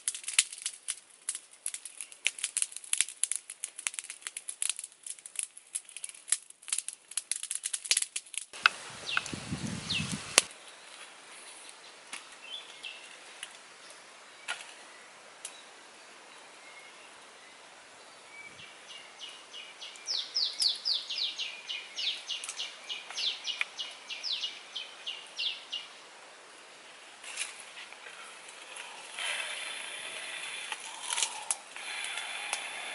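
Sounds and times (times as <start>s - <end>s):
sharp crackling clicks: 0.0s - 9.3s, 27.3s - 32.9s.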